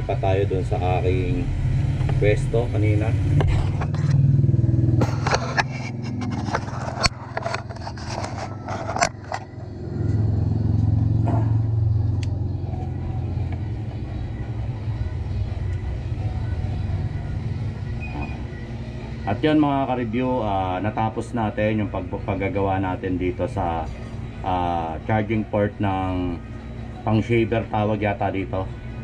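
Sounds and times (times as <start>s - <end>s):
steady low hum: 0.0s - 29.0s
camera gear being handled: 5.1s - 9.5s.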